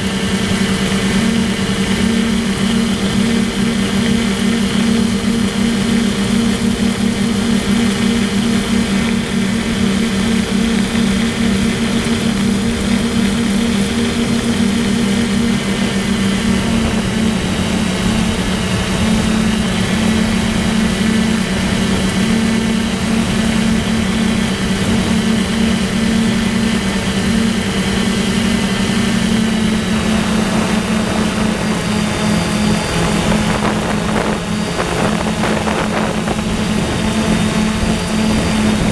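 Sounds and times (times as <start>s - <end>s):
drone propellers humming: 0.0s - 38.9s.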